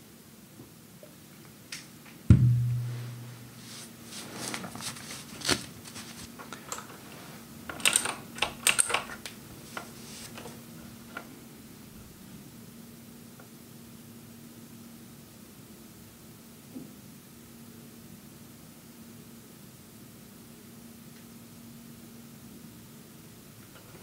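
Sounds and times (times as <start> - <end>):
low thud: 2.3 - 3.7.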